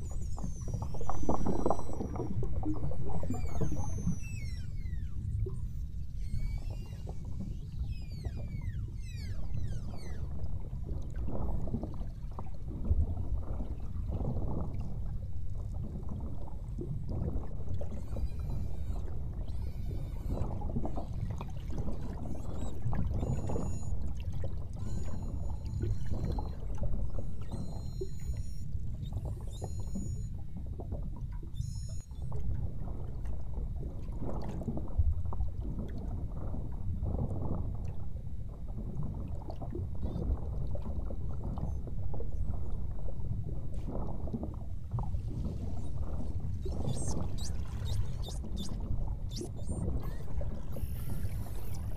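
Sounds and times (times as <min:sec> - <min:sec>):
whale whistles and chirps: 0:00.0 - 0:11.6, 0:17.3 - 0:30.8, 0:31.4 - 0:32.5, 0:45.0 - 0:51.9
boat noise: 0:17.2 - 0:30.6, 0:31.6 - 0:32.3.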